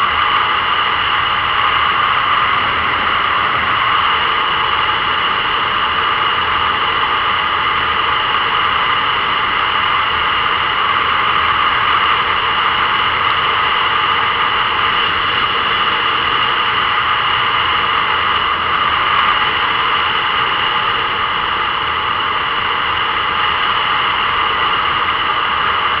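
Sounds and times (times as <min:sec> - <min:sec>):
wind rushing: 0:01.9 - 0:05.6.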